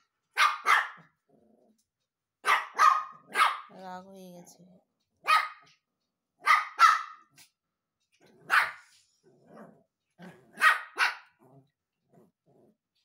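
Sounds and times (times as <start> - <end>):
small dog barking: 0.3 - 1.1, 2.4 - 3.8, 5.2 - 5.8, 6.4 - 7.4, 8.4 - 8.9, 10.5 - 11.4.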